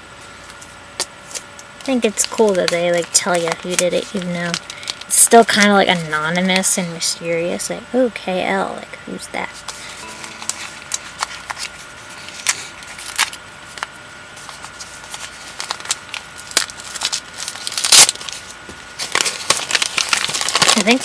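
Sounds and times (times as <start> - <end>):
wrapping rustle: 0.4 - 6.7, 14.3 - 21.0
packaging clicks and crinkles: 0.6 - 5.8, 14.4 - 21.0.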